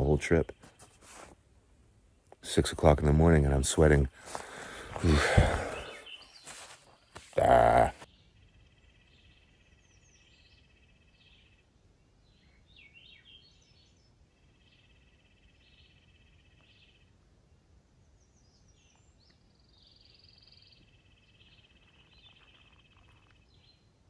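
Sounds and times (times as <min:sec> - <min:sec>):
bird chirps: 0:04.3 - 0:17.2, 0:18.2 - 0:24.0.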